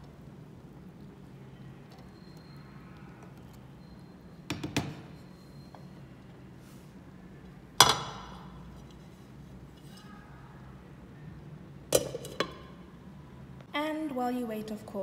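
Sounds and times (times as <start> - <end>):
knocks on metal pot: 7.8 - 8.4
pot clanking: 7.8 - 8.5, 12.0 - 12.7.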